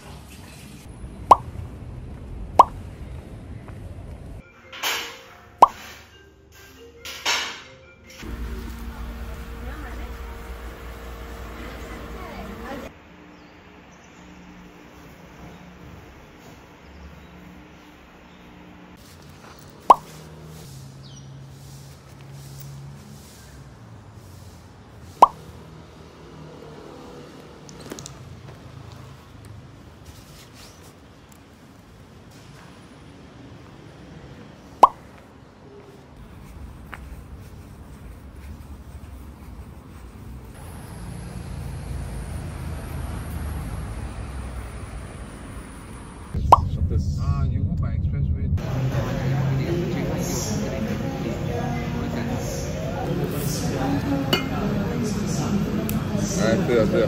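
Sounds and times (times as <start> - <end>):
low traffic-like rumble: 0.8 - 4.4, 8.2 - 57.0
soft background music: 4.4 - 10.0
falling bloop sounds: 46.4 - 46.7.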